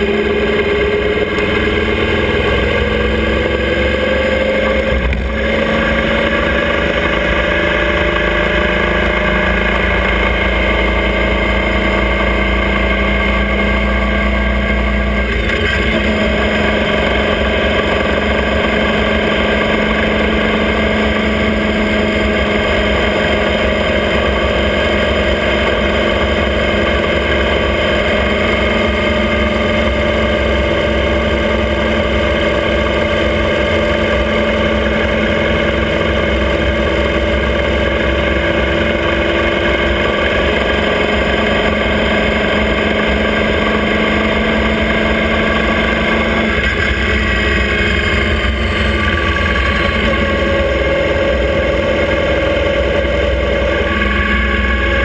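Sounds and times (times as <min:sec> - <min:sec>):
motorcycle engine running: 0:00.0 - 0:55.0
road noise: 0:00.0 - 0:55.0.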